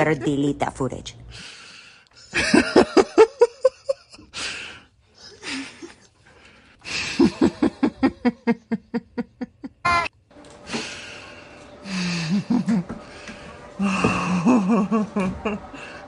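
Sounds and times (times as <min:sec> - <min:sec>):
person laughing: 0:06.9 - 0:10.1, 0:11.9 - 0:13.0, 0:13.8 - 0:15.9.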